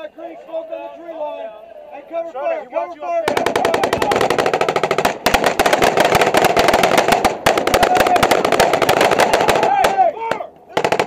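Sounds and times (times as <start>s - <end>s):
heavy automatic gunfire: 3.2s - 10.0s, 10.7s - 11.0s.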